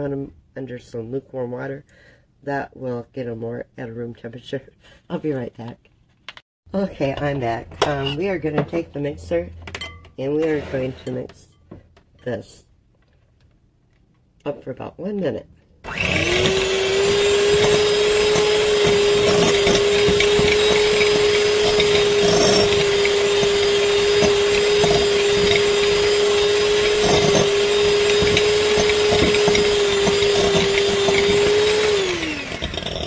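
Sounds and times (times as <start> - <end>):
electric hand mixer running: 15.9 - 33.0.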